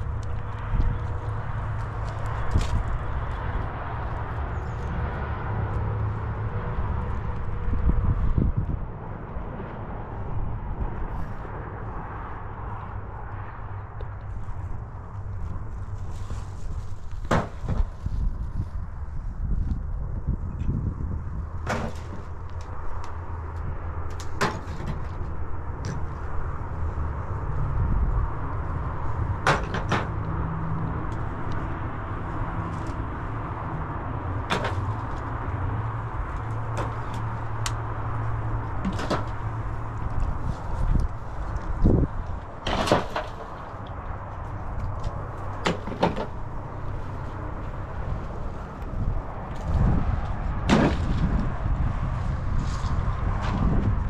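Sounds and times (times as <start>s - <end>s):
wind on microphone: 0.0s - 54.0s.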